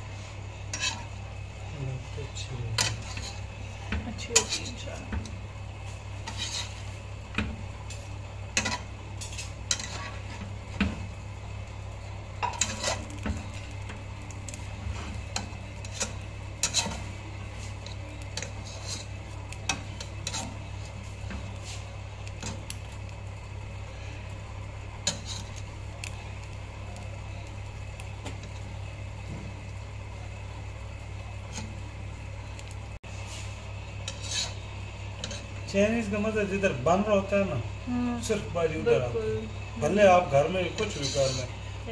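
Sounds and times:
steady low hum: 0:00.0 - 0:41.9
metal spatula scraping a pot: 0:00.7 - 0:01.1, 0:02.8 - 0:03.5, 0:06.2 - 0:07.0, 0:08.6 - 0:10.4, 0:12.4 - 0:13.6, 0:14.9 - 0:21.8, 0:25.0 - 0:25.6, 0:34.0 - 0:34.6, 0:35.2 - 0:35.5, 0:40.7 - 0:41.5.

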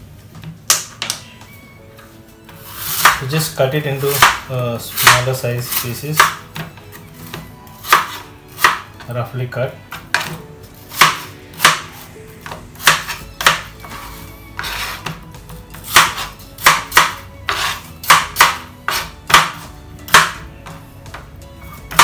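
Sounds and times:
soft background music: 0:00.0 - 0:22.0
knife scraping: 0:02.6 - 0:03.2, 0:03.9 - 0:06.3, 0:12.8 - 0:15.2, 0:17.5 - 0:17.9, 0:18.9 - 0:19.2
knife chopping on cutting board: 0:02.6 - 0:03.4, 0:04.0 - 0:09.1, 0:09.9 - 0:22.0.

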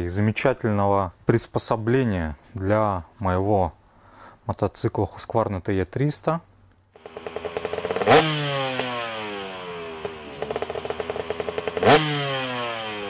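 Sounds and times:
motorcycle engine revving: 0:07.0 - 0:13.0.

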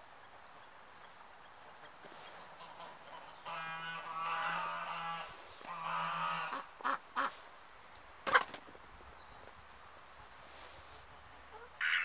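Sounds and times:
ducks quacking: 0:01.8 - 0:07.4, 0:11.5 - 0:12.0.

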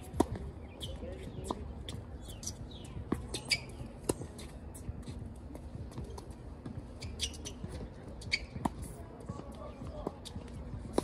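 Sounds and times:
shoe squeaks: 0:00.0 - 0:05.2, 0:05.8 - 0:10.5.

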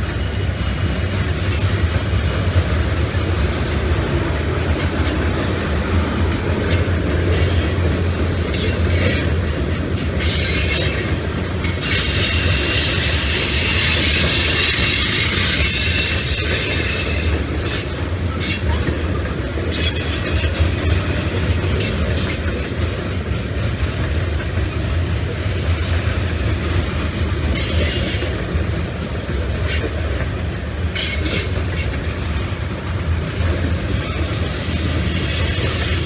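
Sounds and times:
train wheels rumbling on rail: 0:00.0 - 0:36.0
wheel flanges squealing: 0:10.2 - 0:18.9.

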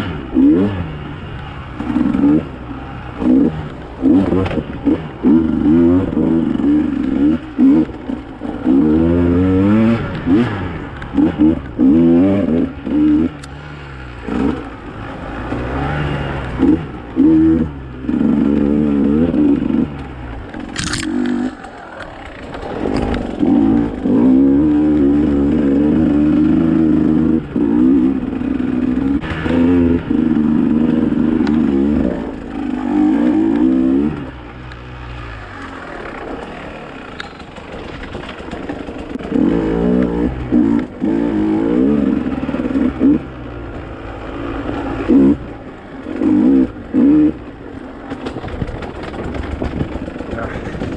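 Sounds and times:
dirt bike engine revving: 0:00.0 - 0:50.9.

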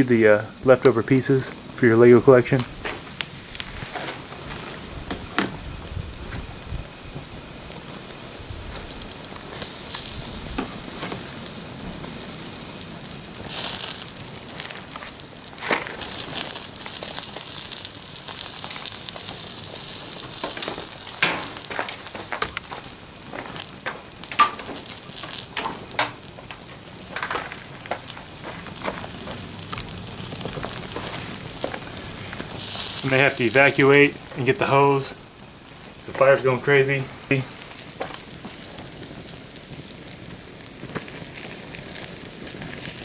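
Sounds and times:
plastic burning with crackling flames: 0:00.0 - 0:43.0
sharp pops: 0:13.4 - 0:43.0.

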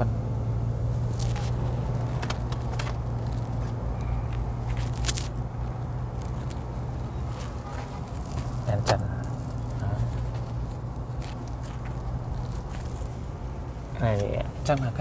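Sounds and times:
car cabin hum: 0:00.0 - 0:04.9
handling clicks and scrapes: 0:01.1 - 0:05.4, 0:06.1 - 0:13.3.

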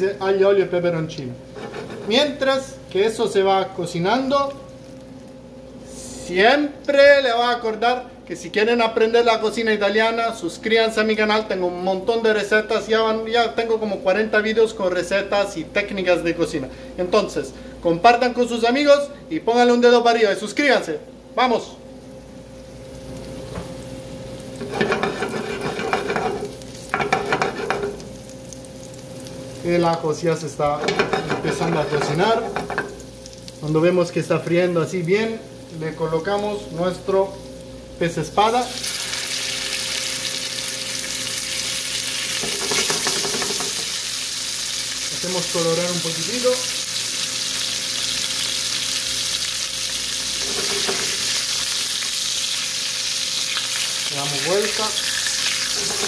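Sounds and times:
garlic sizzling in oil: 0:01.0 - 0:03.3, 0:03.9 - 0:06.4, 0:22.0 - 0:56.0
metal spatula sliding under fish: 0:01.6 - 0:02.2, 0:24.6 - 0:26.5.

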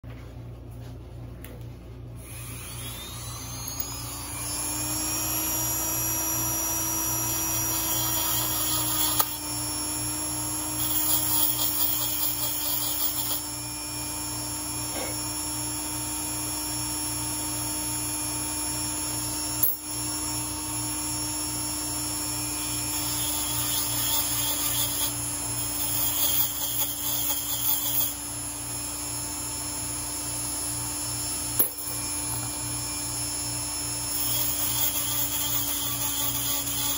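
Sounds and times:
power tool whining: 0:02.2 - 0:36.9
cutter scraping brass case: 0:07.2 - 0:09.4, 0:10.8 - 0:13.4, 0:22.9 - 0:28.2, 0:34.1 - 0:36.9.

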